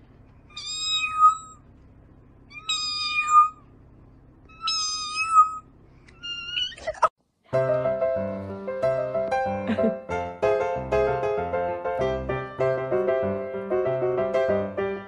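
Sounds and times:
cat meowing: 0.5s - 1.6s, 2.5s - 3.6s, 4.5s - 7.1s.

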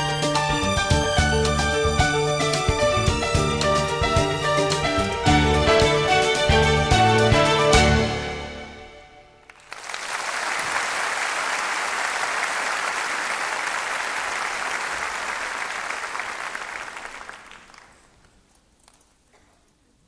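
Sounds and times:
audience applauding: 9.4s - 18.5s.

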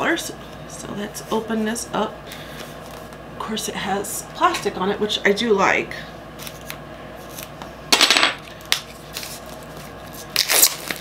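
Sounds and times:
plastic wrap crinkling: 8.6s - 11.0s.

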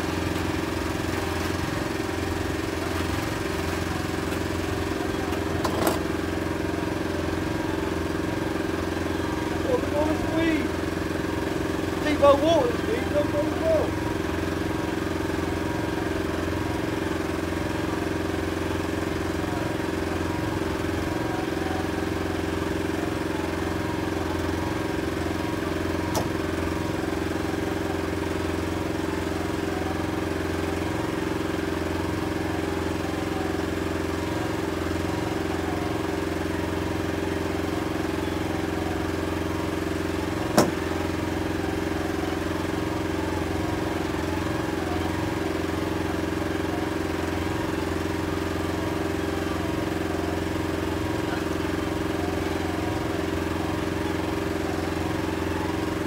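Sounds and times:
outboard motor running: 0.0s - 56.0s.

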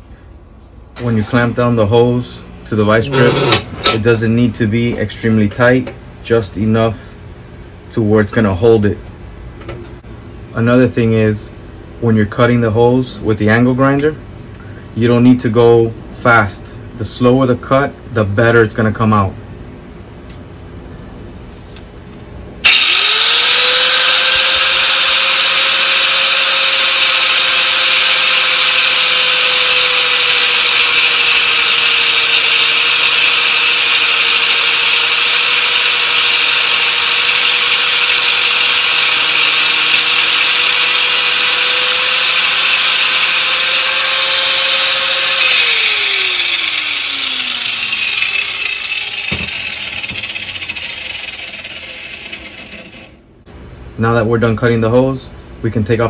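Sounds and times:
angle grinder motor whine: 1.0s - 4.0s, 22.6s - 53.2s
grinder wheel cutting hiss: 22.6s - 53.1s.

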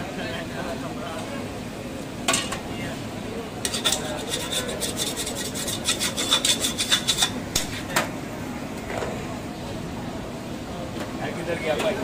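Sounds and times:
metal ladle scraping pot: 3.6s - 7.9s.

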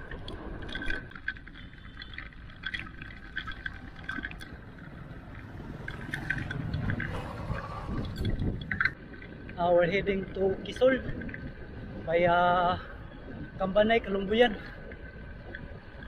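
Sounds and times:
bike tyres and wind rumble: 0.0s - 16.0s
pickup engine passing: 3.7s - 9.0s.

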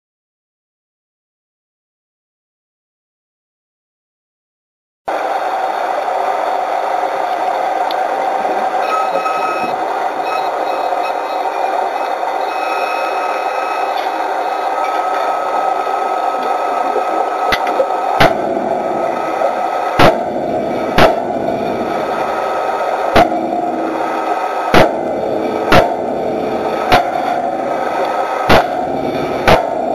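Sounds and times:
underwater rush of bubbles: 14.2s - 28.2s.

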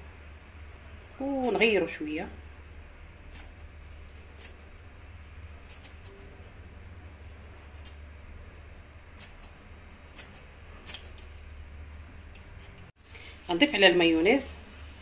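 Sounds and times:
low steady hum: 0.0s - 15.0s
scissors snipping herbs: 1.0s - 1.7s, 3.2s - 8.1s, 9.0s - 12.9s.

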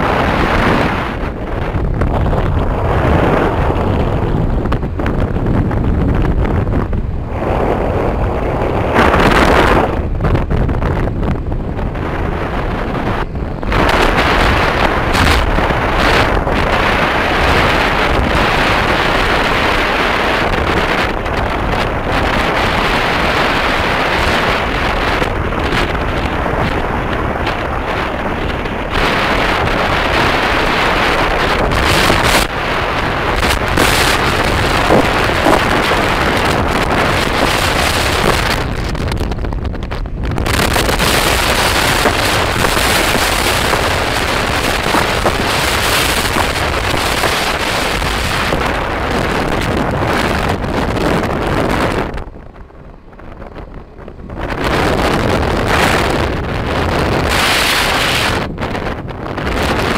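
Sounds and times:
wind rushing over microphone: 0.0s - 59.9s.

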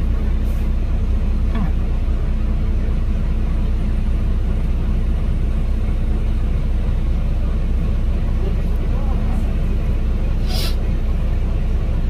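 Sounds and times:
bus engine rumble: 0.0s - 12.0s.

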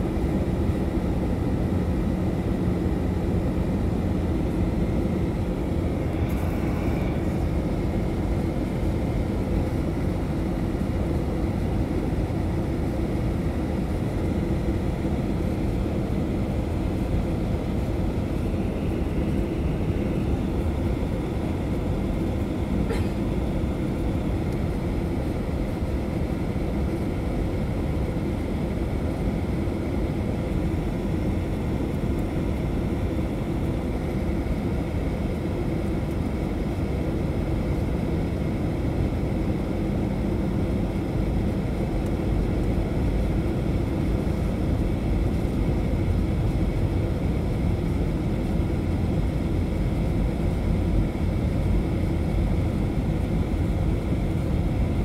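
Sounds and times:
airflow along fuselage: 0.0s - 55.0s
jet engine rumble: 0.0s - 55.0s
faint engine tones: 1.2s - 11.7s.

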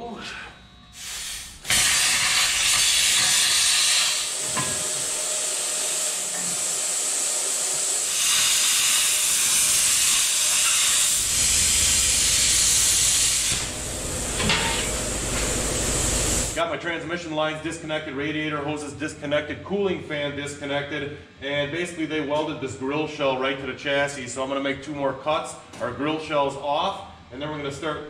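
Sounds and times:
plasma cutter hissing: 1.0s - 16.6s.

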